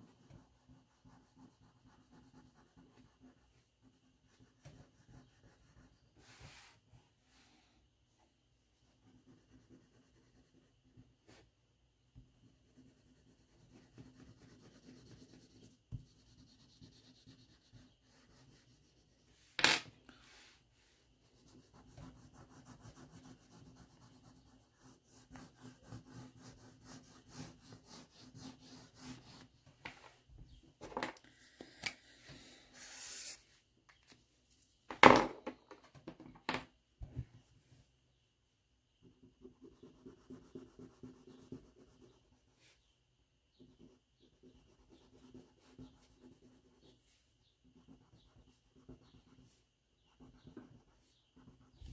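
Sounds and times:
crayon scribbling on paper: 0.0s - 6.8s, 8.8s - 11.4s, 12.2s - 19.5s, 21.2s - 29.5s, 39.1s - 42.5s, 43.6s - 47.0s, 47.6s - 51.9s.

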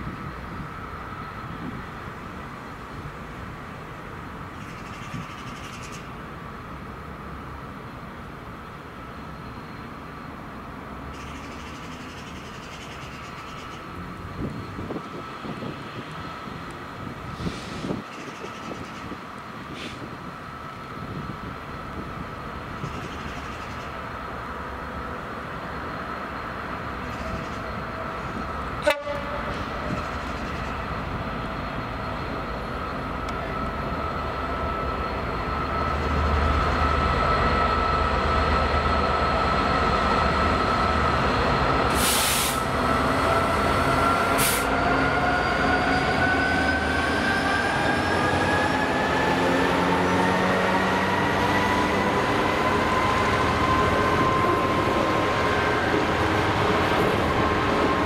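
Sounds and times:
diesel locomotive whine: 0.0s - 58.0s
short hisses: 17.4s - 18.0s, 19.7s - 20.1s, 41.9s - 42.7s.

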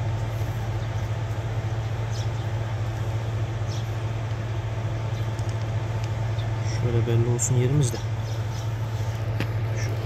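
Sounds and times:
air compressor humming: 0.0s - 10.0s.

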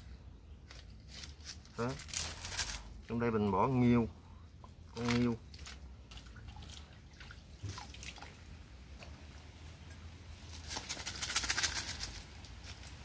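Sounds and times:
water sloshing and splashing: 4.6s - 11.6s.

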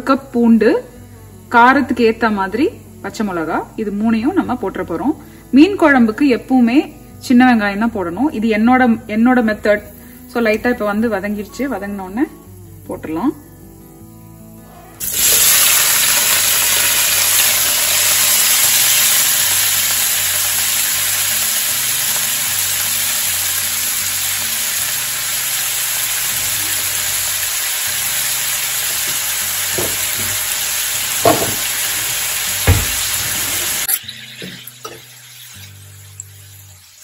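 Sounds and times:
vegetables sizzling in hot oil: 15.0s - 37.0s
spoon knocking against pan: 29.7s - 30.4s, 31.2s - 31.7s.

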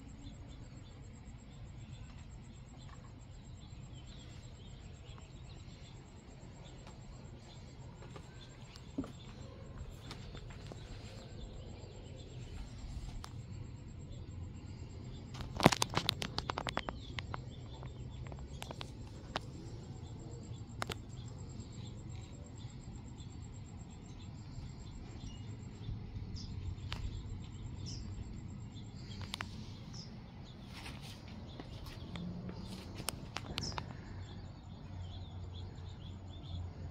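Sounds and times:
birds chirping: 0.0s - 36.9s
steady low hum: 0.0s - 36.9s
sharp clattering clicks: 15.3s - 19.8s.

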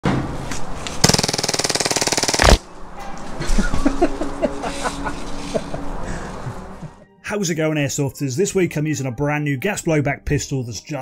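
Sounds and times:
airsoft pistol full-auto burst: 1.0s - 2.6s
man laughing: 3.4s - 7.0s.

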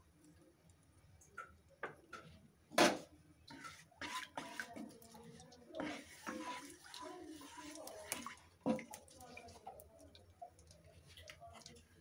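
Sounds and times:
spatula scraping and stirring: 3.5s - 12.0s.

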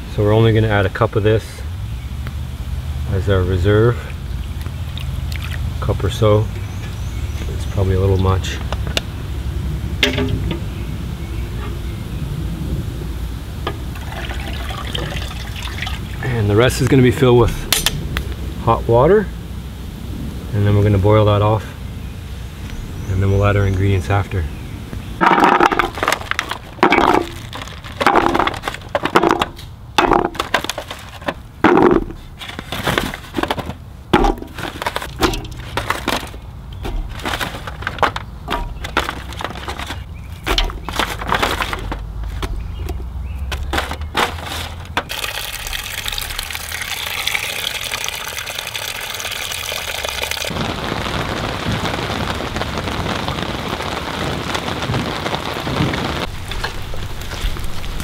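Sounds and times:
vegetables dropped into metal pot: 10.0s - 10.6s, 25.2s - 45.7s.

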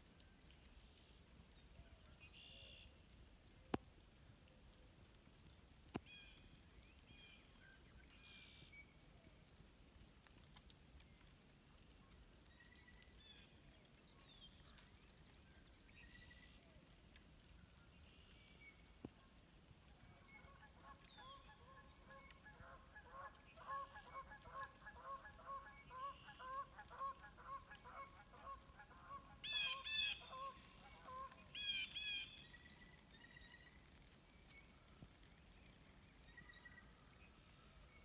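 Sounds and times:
high goose calls: 20.2s - 32.3s
geese honking: 20.4s - 31.4s.

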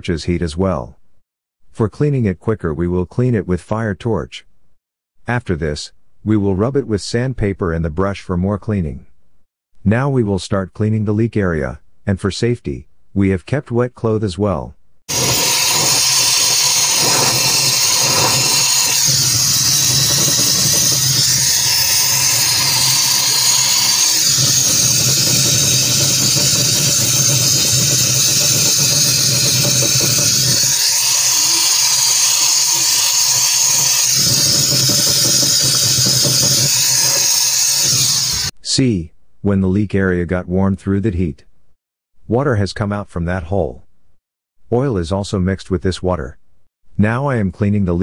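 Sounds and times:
torch flame hissing: 15.1s - 38.5s.

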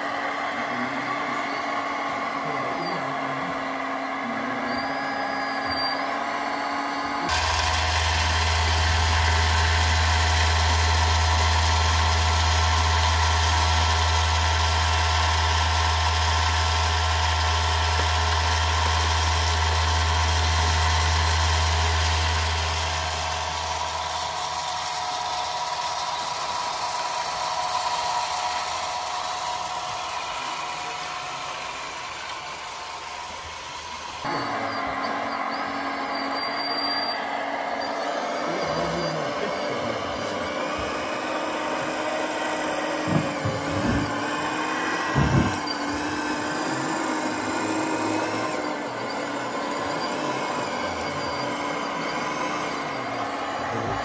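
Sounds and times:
engine-like low hum: 0.0s - 54.0s
mechanical whine: 0.0s - 54.0s.

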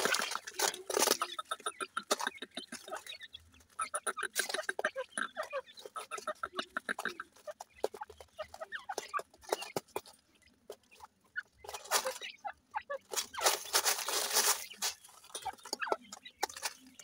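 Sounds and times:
birds peeping and clucking: 0.0s - 17.0s
loud rustling: 13.1s - 15.5s.

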